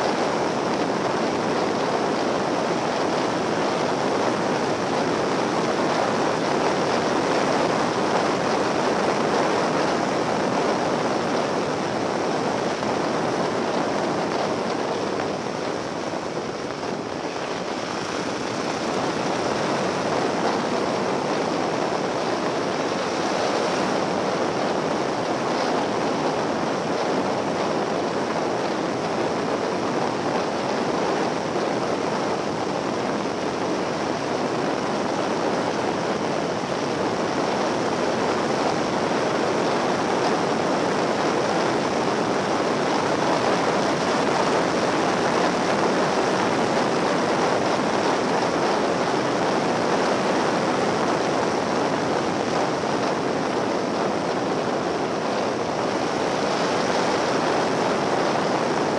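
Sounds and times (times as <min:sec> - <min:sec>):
wind rushing over microphone: 0:00.0 - 0:58.9
road noise: 0:09.8 - 0:25.3.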